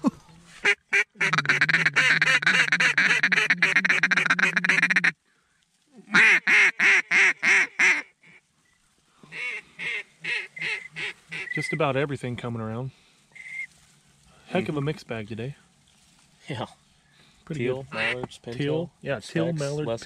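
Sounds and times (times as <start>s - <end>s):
duck call chatter: 0.5s - 5.2s, 6.1s - 8.4s, 9.3s - 11.7s, 17.9s - 18.3s
duck call quacks: 0.6s - 5.2s, 6.1s - 8.4s, 9.3s - 11.7s, 17.9s - 18.3s.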